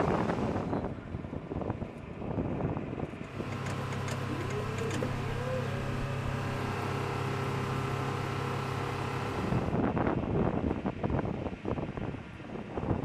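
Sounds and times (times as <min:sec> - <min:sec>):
machinery hum with held tones: 0:00.0 - 0:09.9
rising and falling whine: 0:03.3 - 0:09.8.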